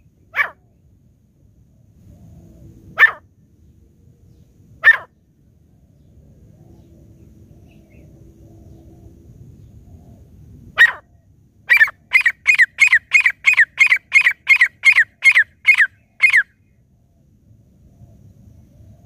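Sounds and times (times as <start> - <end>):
francolin calling: 11.7 - 16.8.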